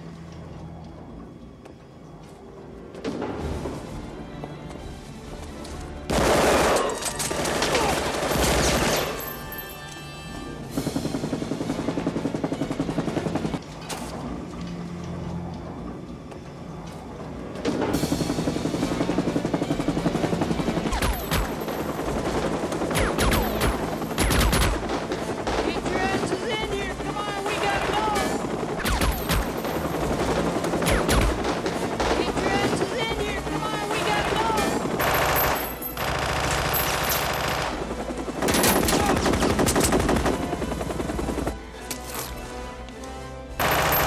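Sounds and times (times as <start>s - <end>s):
helicopter rotor beating: 7.3s - 41.6s, 43.6s - 44.0s
submachine gun firing bursts: 18.3s - 41.5s, 43.6s - 44.0s.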